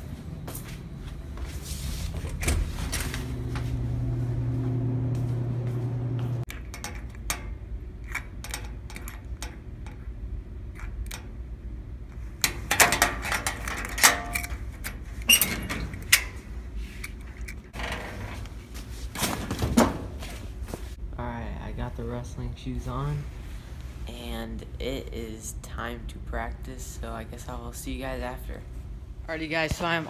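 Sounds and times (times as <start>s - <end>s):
metal locker clanks and rattles: 12.4s - 16.5s.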